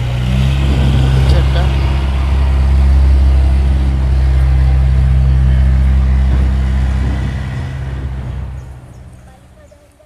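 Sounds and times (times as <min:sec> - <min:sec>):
engine humming steadily: 0:00.0 - 0:10.0.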